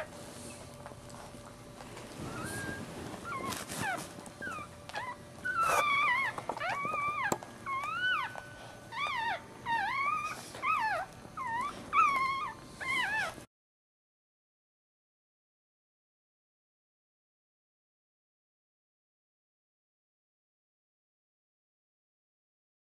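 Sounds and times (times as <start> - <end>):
rustling: 0.0 - 13.4
puppies crying: 2.1 - 13.5.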